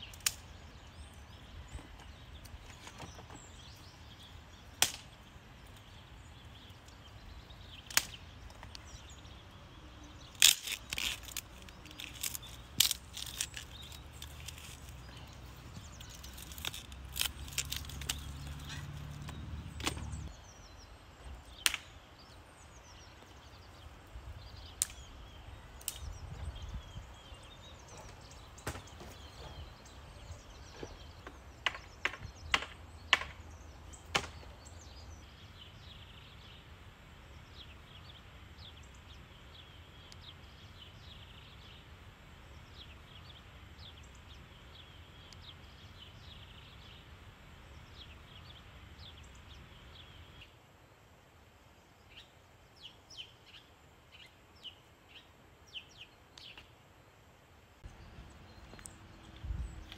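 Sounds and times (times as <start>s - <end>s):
sharp knocks and cracks: 4.8s - 5.2s, 7.8s - 8.8s, 16.2s - 20.3s, 21.6s - 21.9s, 28.0s - 29.5s, 30.7s - 34.5s.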